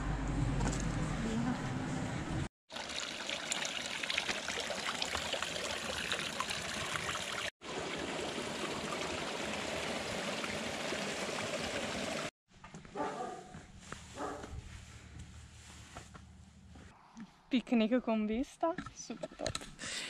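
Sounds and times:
thin stream of water running: 0:02.7 - 0:12.3.

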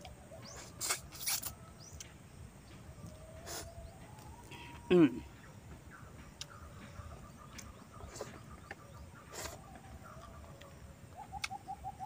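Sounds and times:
bird calling repeated notes: 0:03.0 - 0:12.0.

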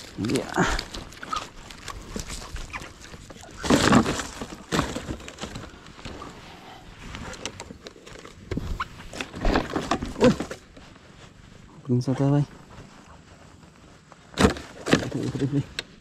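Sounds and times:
net rustling: 0:00.0 - 0:11.7.

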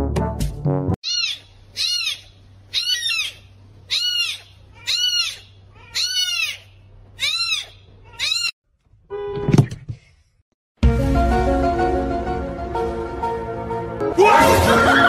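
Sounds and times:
kitten mewing: 0:01.0 - 0:06.6, 0:07.2 - 0:08.5.

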